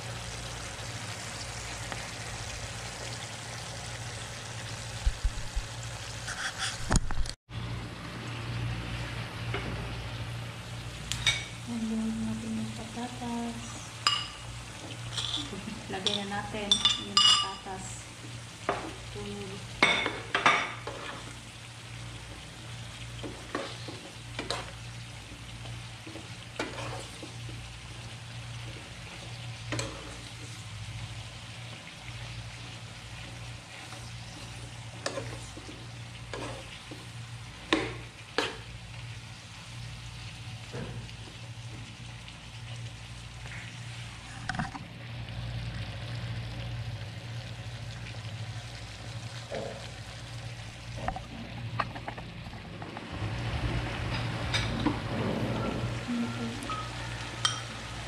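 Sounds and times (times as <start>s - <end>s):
food sizzling in a frying pan: 0.0s - 58.0s
metal spoon scraping pan: 15.1s - 17.6s, 26.6s - 27.3s, 35.0s - 36.8s.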